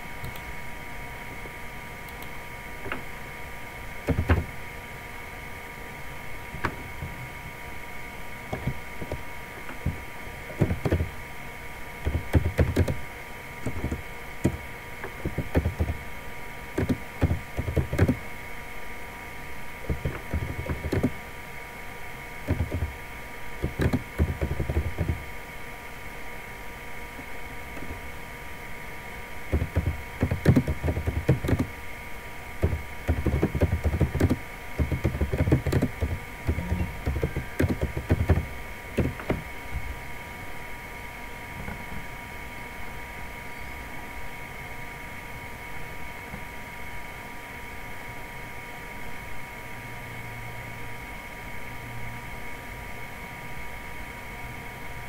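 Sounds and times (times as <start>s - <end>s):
faint electrical whine: 0.0s - 55.0s
keyboard key taps: 4.1s - 4.5s, 8.5s - 10.0s, 10.6s - 11.1s, 12.0s - 13.0s, 13.7s - 16.0s, 16.8s - 18.2s, 19.9s - 21.1s, 22.5s - 23.0s, 23.6s - 25.2s, 29.5s - 31.7s, 32.6s - 39.4s.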